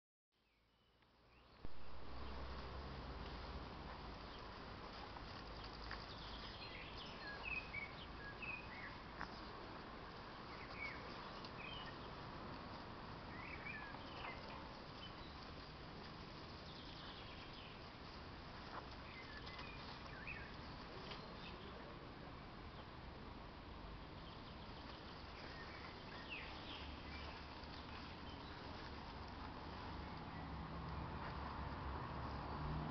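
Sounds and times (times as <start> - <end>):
faint outdoor background: 0.3 - 32.9
shrub branches rustling: 1.1 - 23.0, 23.6 - 32.9
bird chirps: 5.5 - 9.6, 10.3 - 12.2, 13.3 - 15.6, 16.4 - 17.8, 18.7 - 21.9, 24.1 - 28.9.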